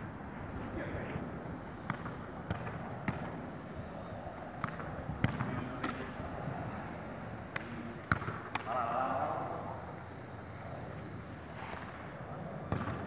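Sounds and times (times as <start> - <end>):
steady outdoor hiss: 0.0 - 13.0
football kick thuds: 4.6 - 6.1, 7.5 - 8.8, 12.7 - 13.0.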